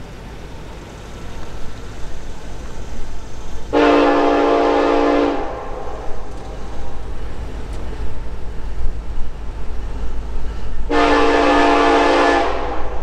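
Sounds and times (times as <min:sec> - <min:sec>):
train rumble: 0:00.0 - 0:13.0
locomotive air horn blast: 0:03.7 - 0:06.4, 0:10.9 - 0:13.0.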